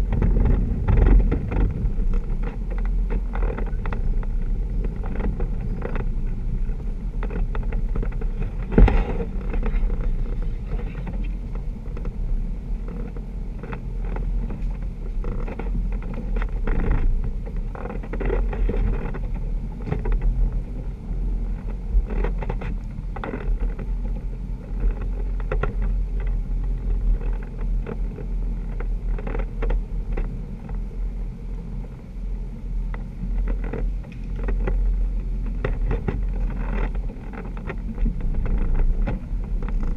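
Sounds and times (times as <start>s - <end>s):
vehicle knocks and rattles: 0.0s - 20.8s, 35.5s - 39.9s
engine low rumble: 0.0s - 39.9s.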